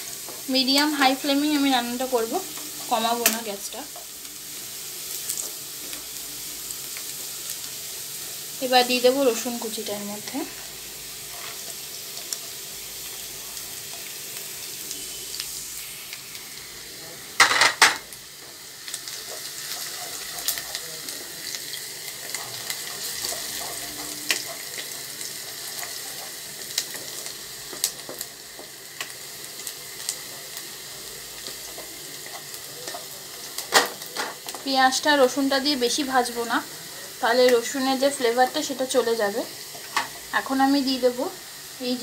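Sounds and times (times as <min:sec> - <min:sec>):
onion sizzling in hot oil: 0:00.0 - 0:42.0.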